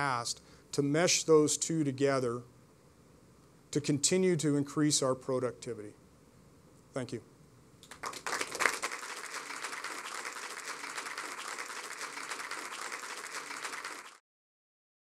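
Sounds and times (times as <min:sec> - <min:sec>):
audience applauding: 0:07.8 - 0:14.2.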